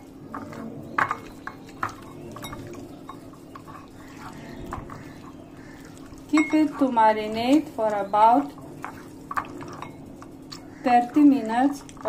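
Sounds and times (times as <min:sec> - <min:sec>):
food clinking against ceramic bowl: 0:00.3 - 0:05.1, 0:06.3 - 0:07.6.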